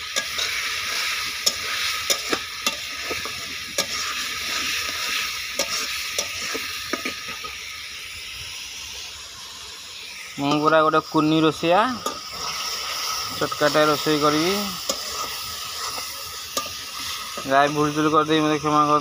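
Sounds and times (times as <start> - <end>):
spices sizzling in oil: 0.0 - 19.0
ladle clicking in pan: 0.1 - 0.7, 1.4 - 4.1, 5.6 - 7.5, 12.0 - 12.3.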